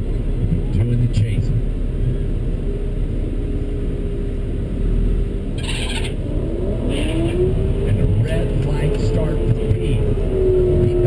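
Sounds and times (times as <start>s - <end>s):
car engine idling: 0.0s - 11.0s
race car accelerating: 4.7s - 11.0s.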